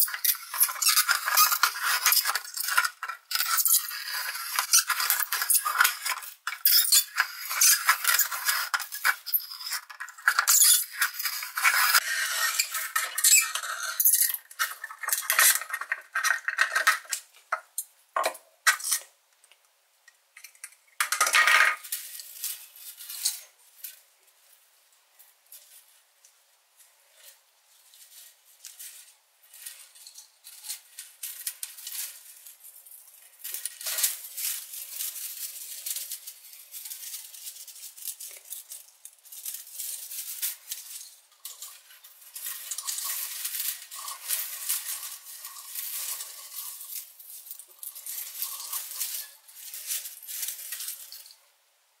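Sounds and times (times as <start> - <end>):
plastic strip crinkling: 0.0 - 17.6, 28.1 - 51.4.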